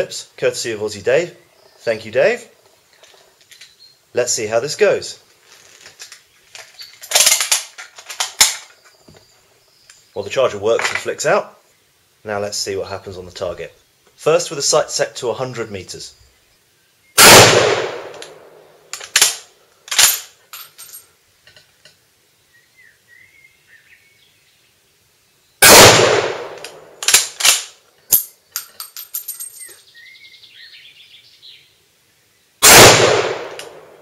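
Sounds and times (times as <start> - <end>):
rifle bolt clicking and rattling: 5.7 - 8.8, 18.1 - 21.0, 26.6 - 29.8
rifle shots: 17.2 - 19.4, 25.6 - 27.7, 32.6 - 34.0.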